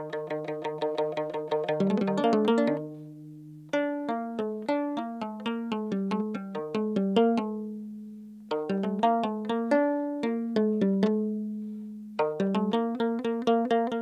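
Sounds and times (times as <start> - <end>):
plucked lyre notes: 0.0 - 14.0.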